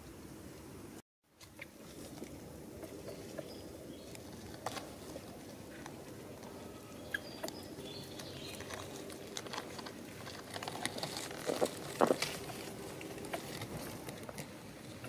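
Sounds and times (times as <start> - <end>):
monkeys moving over stone and leaves: 1.4 - 15.0.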